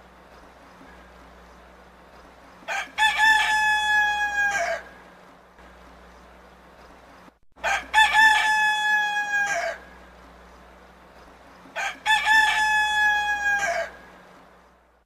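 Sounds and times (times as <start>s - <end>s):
rooster crowing: 2.6s - 5.0s, 7.6s - 10.0s, 11.7s - 14.2s.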